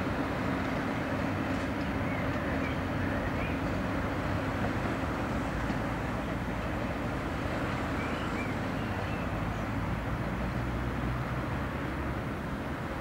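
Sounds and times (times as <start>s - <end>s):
diesel locomotive engine running: 0.0s - 13.0s.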